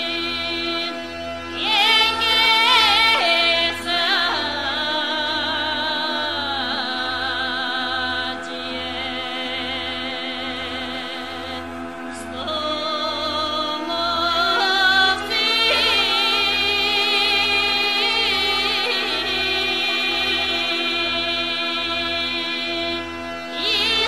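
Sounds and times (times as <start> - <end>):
held notes with vibrato: 0.0 - 24.0
steady drone: 0.0 - 24.0.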